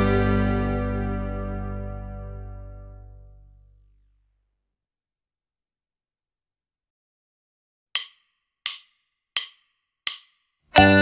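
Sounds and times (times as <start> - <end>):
backing band with guitar: 0.0 - 2.6, 10.8 - 11.0.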